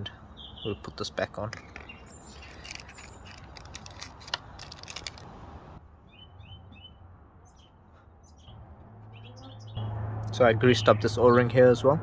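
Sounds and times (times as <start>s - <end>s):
small birds chirping: 0.0s - 5.2s, 6.0s - 9.8s
hands handling small parts: 1.3s - 5.4s.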